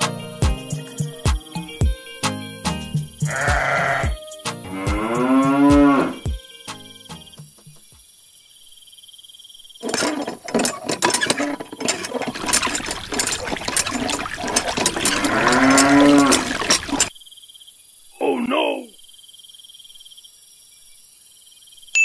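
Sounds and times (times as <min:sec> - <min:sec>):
cow mooing: 0:03.3 - 0:04.1, 0:04.7 - 0:06.3, 0:14.9 - 0:17.1.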